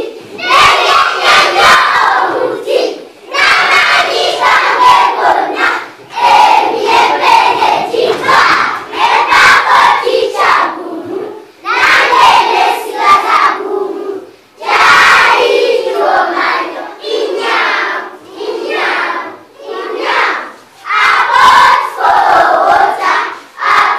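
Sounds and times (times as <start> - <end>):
children singing and chanting: 0.0 - 23.9.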